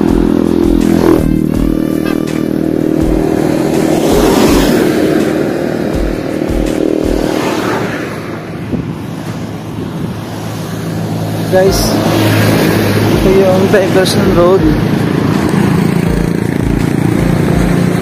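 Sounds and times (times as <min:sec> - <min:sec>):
road and wind noise: 0:00.0 - 0:18.0
vehicle engine hum: 0:00.0 - 0:18.0
wind buffeting microphone: 0:07.1 - 0:18.0.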